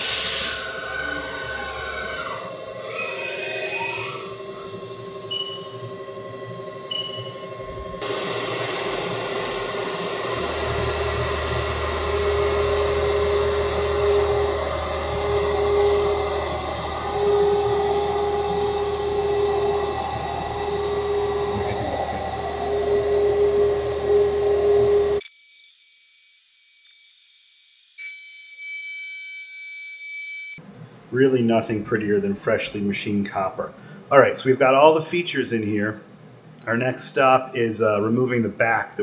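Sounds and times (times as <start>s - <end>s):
coolant spray hissing: 0.0s - 25.2s
milling cutter whine: 0.0s - 25.2s
thin high tones: 0.0s - 25.2s
low machine hum: 0.3s - 25.2s.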